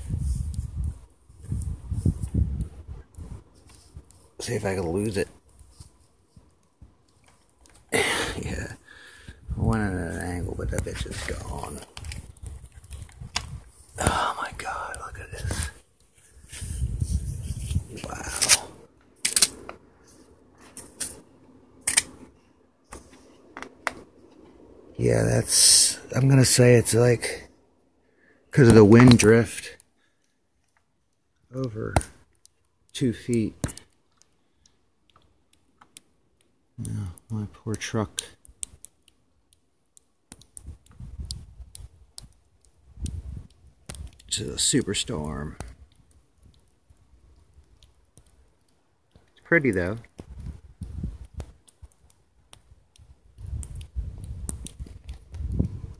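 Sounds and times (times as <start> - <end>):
wind gusting across microphone: 0.0 - 7.0, 8.0 - 19.7, 40.6 - 47.9, 50.0 - 51.9, 52.5 - 55.9
sharp clicks and ticks: 28.6 - 55.9.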